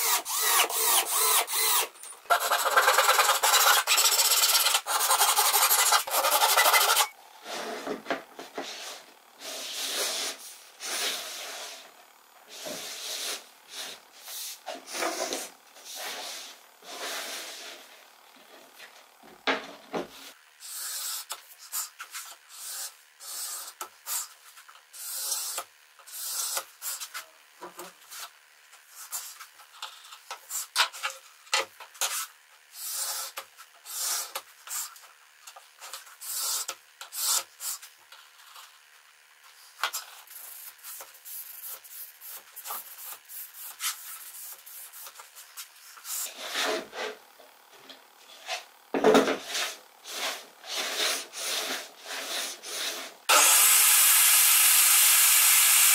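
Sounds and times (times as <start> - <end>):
hand saw cutting: 0.0 - 7.1, 50.8 - 55.9.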